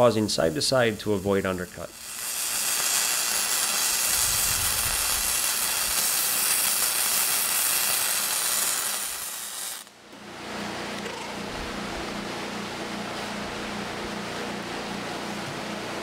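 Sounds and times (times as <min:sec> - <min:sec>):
welding arc hissing with spatter: 0:00.0 - 0:10.0.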